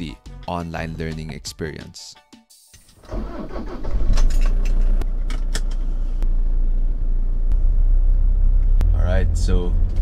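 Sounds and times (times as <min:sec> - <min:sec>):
car engine starting and running: 0:03.0 - 0:10.0.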